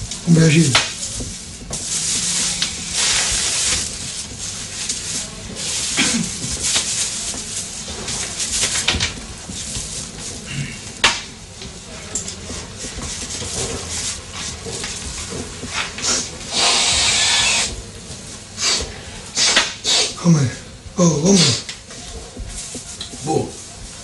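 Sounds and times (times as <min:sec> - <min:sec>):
card scraping on foil: 0:01.8 - 0:08.8
hard sniff: 0:16.0 - 0:17.7, 0:18.6 - 0:20.2.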